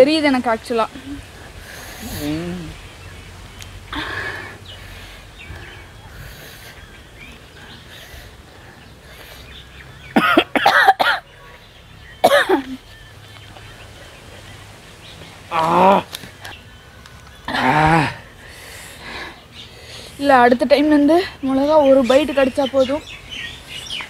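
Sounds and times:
person coughing: 10.2 - 11.2, 12.2 - 12.8.

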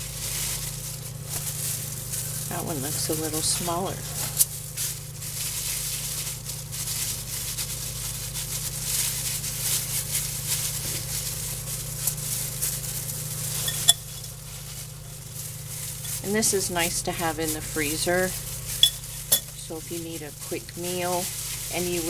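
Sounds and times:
plastic gloves crinkling: 0.0 - 22.0
steady low hum: 0.0 - 22.0.

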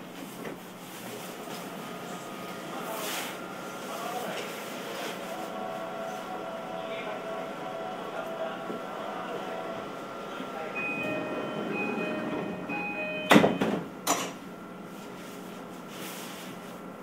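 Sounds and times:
air conditioning hum: 0.0 - 17.0
electronic chime tones: 10.8 - 13.8.

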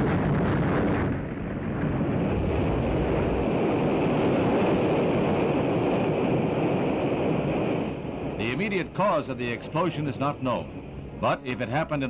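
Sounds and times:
rocket explosion rumble: 0.0 - 8.4.

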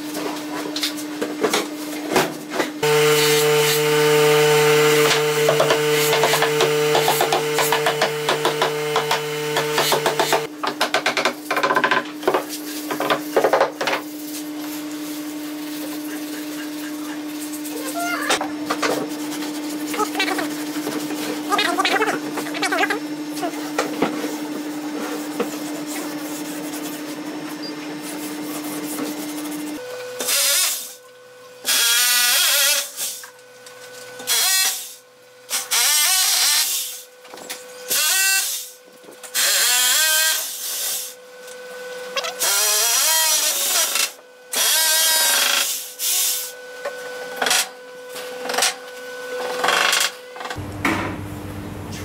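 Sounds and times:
steady machine hum: 2.8 - 10.7, 50.6 - 52.0.

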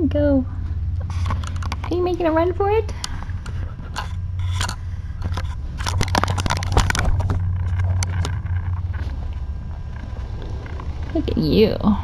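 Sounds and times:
steady low hum: 0.0 - 12.0
kitten claws scrabbling: 3.9 - 9.0.

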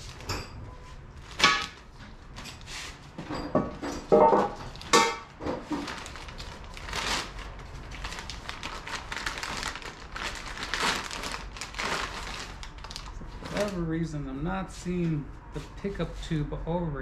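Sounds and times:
plastic bag crinkling: 1.0 - 2.4, 4.6 - 13.9.

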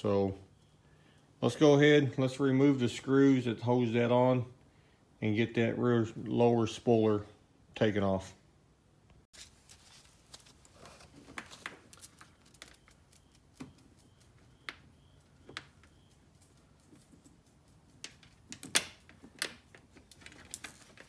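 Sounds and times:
clicks and rattles of plastic parts: 18.0 - 21.0.

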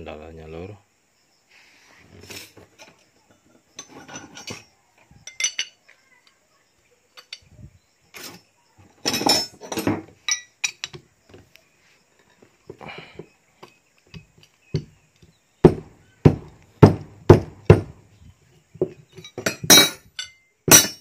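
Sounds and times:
wrench clinking against metal: 3.8 - 5.8, 7.2 - 7.5, 9.1 - 11.0, 19.2 - 21.0.

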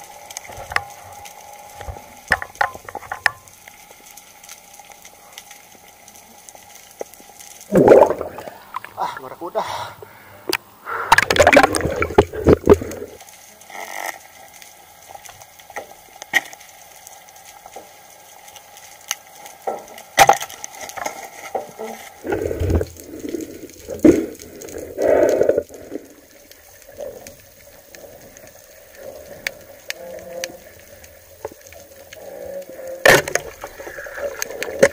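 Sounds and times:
diving gear clicks and knocks: 1.8 - 3.6
underwater bubble noise: 7.6 - 9.0, 11.1 - 13.2, 22.2 - 34.9.

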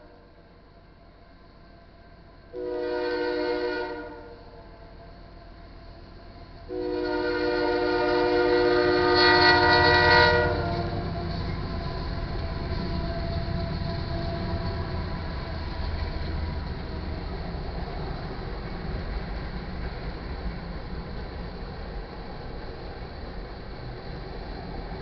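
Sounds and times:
freight train rumbling past: 0.0 - 25.0
locomotive air horn chord: 2.5 - 5.0, 6.7 - 12.1.

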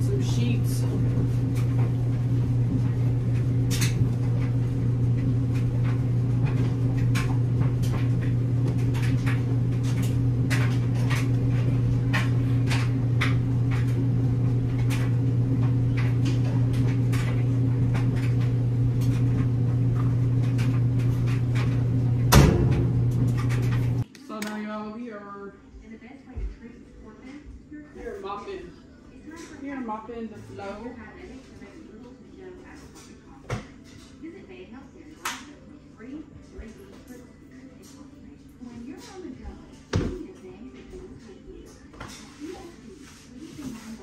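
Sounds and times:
laundry machine humming: 0.0 - 24.1, 28.0 - 32.8.

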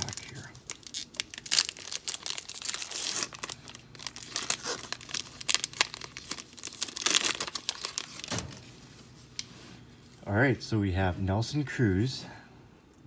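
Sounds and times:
foil wrapper tearing and crinkling: 0.0 - 8.7.

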